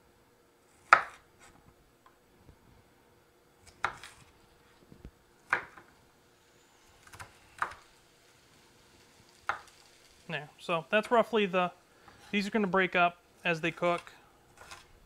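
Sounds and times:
knife chopping on wooden board: 0:00.7 - 0:01.6, 0:03.6 - 0:04.2, 0:05.5 - 0:05.9, 0:07.0 - 0:07.8.

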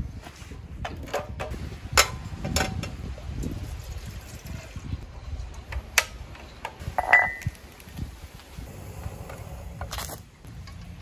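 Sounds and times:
kettle clattering: 0:07.0 - 0:07.5.

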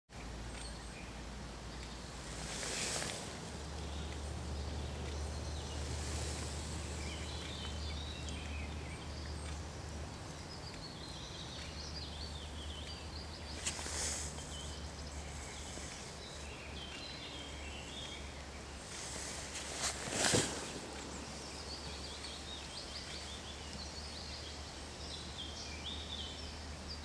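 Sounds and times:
steady low rumble: 0:00.2 - 0:24.8
distant birds singing: 0:00.2 - 0:27.0.

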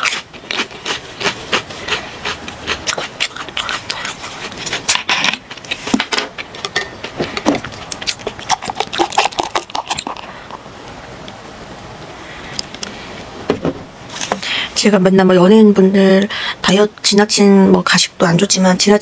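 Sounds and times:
chewing crunchy chips: 0:00.0 - 0:10.7.

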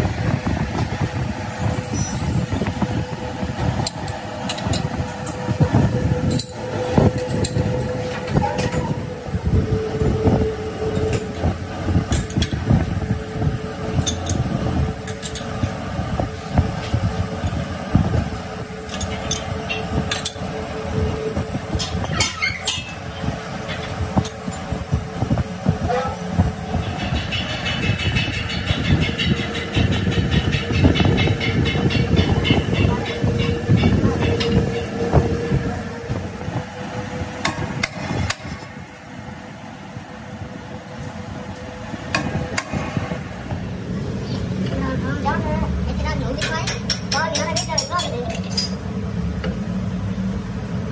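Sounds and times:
lathe humming: 0:00.0 - 0:22.2
metal lathe humming: 0:00.8 - 0:44.8.

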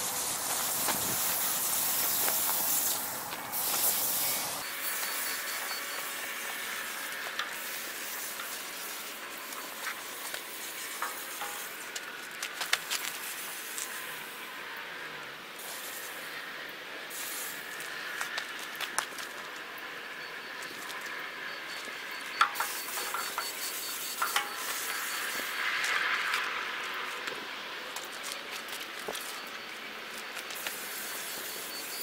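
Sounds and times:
paint spray gun hissing: 0:00.0 - 0:12.0, 0:15.6 - 0:16.3, 0:17.1 - 0:17.8, 0:22.4 - 0:26.0, 0:30.6 - 0:32.0.

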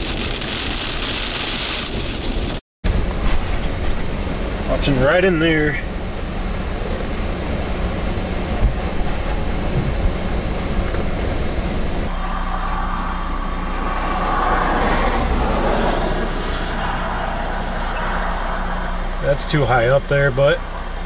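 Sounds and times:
wind buffeting microphone: 0:06.6 - 0:12.1.

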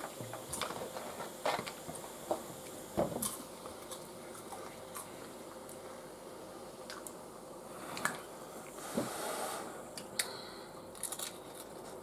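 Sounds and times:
tortilla chips crunching: 0:10.9 - 0:12.0.

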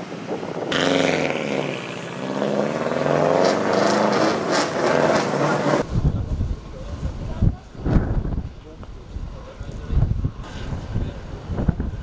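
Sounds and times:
rally car engine accelerating: 0:00.7 - 0:05.9.

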